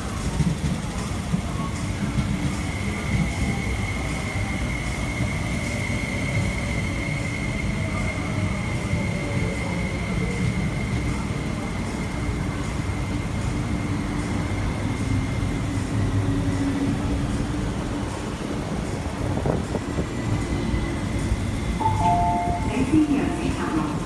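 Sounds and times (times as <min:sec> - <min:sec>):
wheels rumbling on rail: 0:00.0 - 0:24.0
tone falling in pitch: 0:21.8 - 0:23.0.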